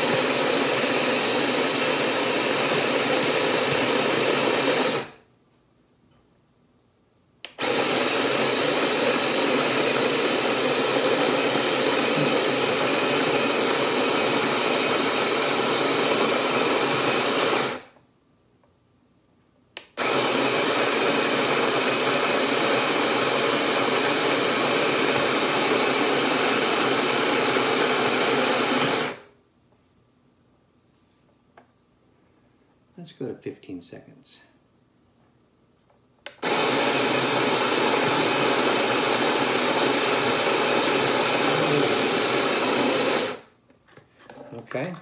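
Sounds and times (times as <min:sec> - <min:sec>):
coffee grinder grinding beans: 0:00.0 - 0:05.2, 0:07.5 - 0:17.9, 0:20.0 - 0:29.2, 0:36.4 - 0:43.4.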